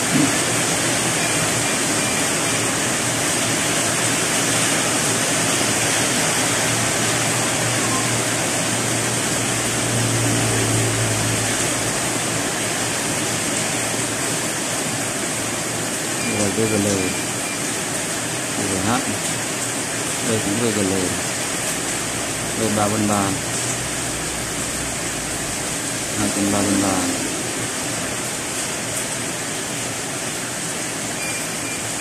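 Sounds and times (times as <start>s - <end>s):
loud steady rushing noise: 0.0s - 16.3s.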